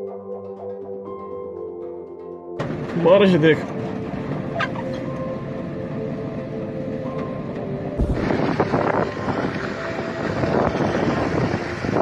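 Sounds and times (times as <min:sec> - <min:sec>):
vehicle running noise: 0:02.6 - 0:12.0
wind buffeting microphone: 0:07.9 - 0:12.0.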